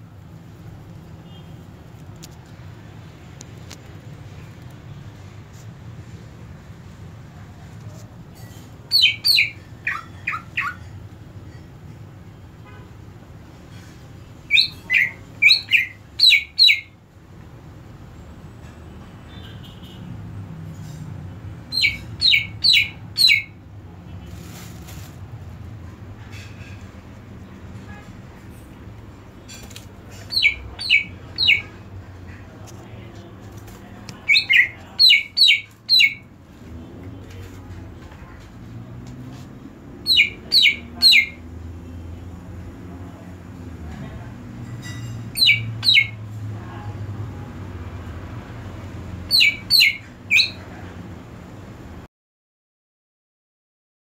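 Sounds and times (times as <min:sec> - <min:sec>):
bird whistled calls: 0:08.9 - 0:10.8, 0:21.7 - 0:23.5, 0:30.3 - 0:31.7, 0:45.4 - 0:46.2, 0:49.3 - 0:50.6.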